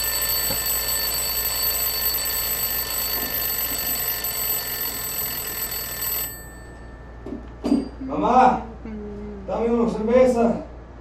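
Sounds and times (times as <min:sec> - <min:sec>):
alarm clock ringing: 0:00.0 - 0:07.3.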